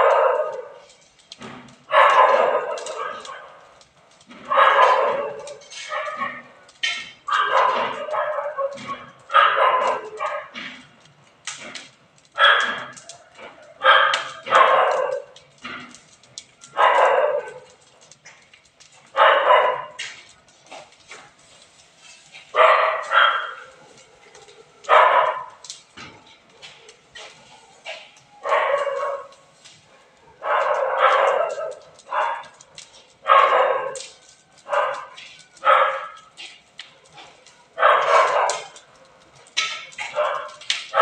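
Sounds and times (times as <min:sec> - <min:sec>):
dog barking: 0:00.0 - 0:00.9, 0:01.8 - 0:03.6, 0:04.4 - 0:06.5, 0:07.2 - 0:10.6, 0:12.4 - 0:15.4, 0:16.6 - 0:17.9, 0:19.1 - 0:20.2, 0:22.5 - 0:25.6, 0:27.4 - 0:36.6, 0:37.2 - 0:39.0, 0:39.8 - 0:41.0
burning straw crackling: 0:00.0 - 0:41.0.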